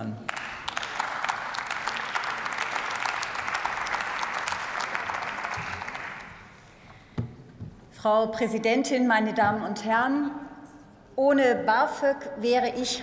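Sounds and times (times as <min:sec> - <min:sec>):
applause: 0:00.2 - 0:06.6.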